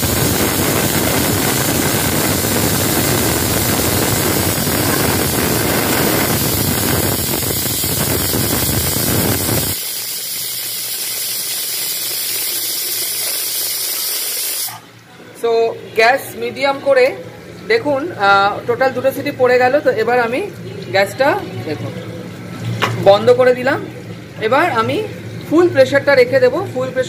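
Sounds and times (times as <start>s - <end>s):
pressure cooker whistling: 0.0s - 14.9s.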